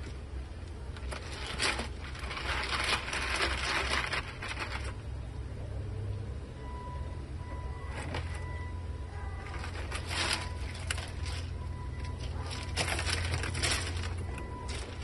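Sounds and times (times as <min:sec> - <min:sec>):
ice cubes crunching and crackling: 0:00.7 - 0:05.0, 0:09.4 - 0:15.0.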